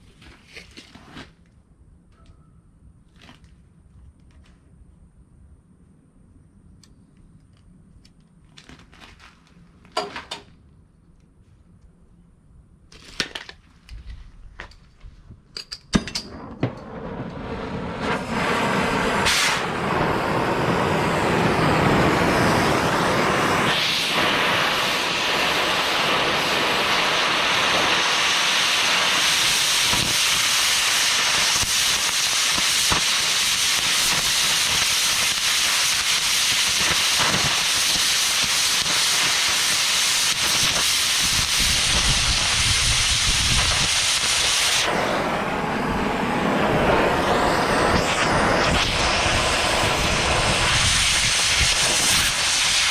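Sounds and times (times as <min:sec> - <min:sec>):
cutting torch hissing: 0:16.4 - 0:52.9.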